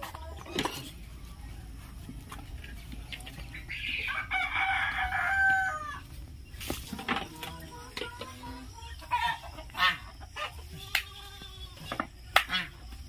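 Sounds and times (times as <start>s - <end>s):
chickens clucking: 0.0s - 13.0s
rooster crowing: 4.0s - 6.1s.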